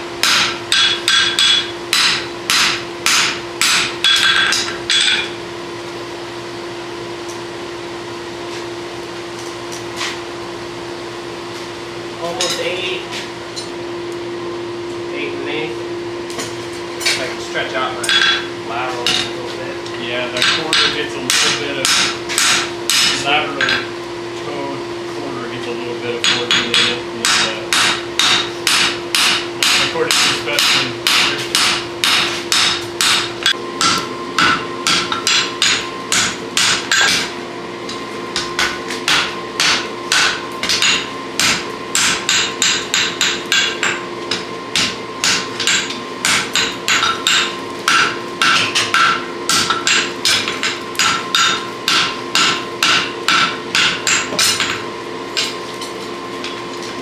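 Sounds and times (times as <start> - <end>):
steady hum: 0.0 - 57.0
hammer striking horseshoe on anvil: 0.2 - 5.4, 16.4 - 19.4, 20.3 - 23.9, 26.2 - 37.3, 37.9 - 56.6.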